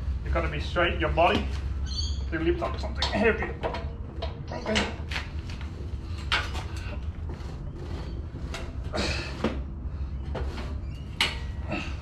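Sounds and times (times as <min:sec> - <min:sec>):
steady low rumble: 0:00.0 - 0:12.0
metal parts knocking and scraping: 0:02.6 - 0:05.5, 0:06.1 - 0:09.5.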